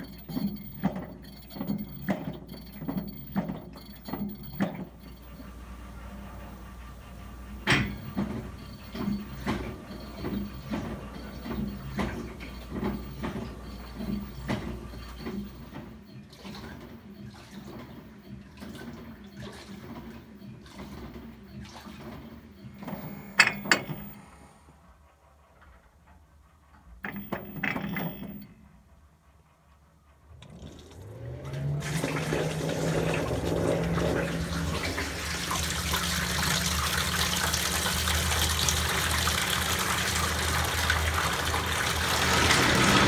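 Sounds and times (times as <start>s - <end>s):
washing machine water sloshing: 7.5s - 23.3s, 30.5s - 43.0s.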